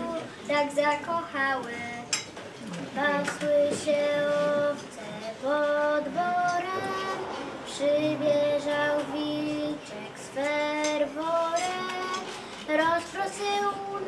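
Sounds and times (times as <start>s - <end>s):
girls singing unaccompanied: 2.9s - 14.0s.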